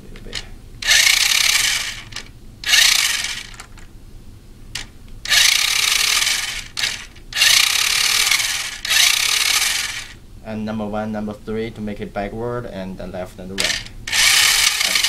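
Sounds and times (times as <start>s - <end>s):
toy truck motor whirring: 0.8s - 3.8s, 4.8s - 10.2s, 13.6s - 15.0s.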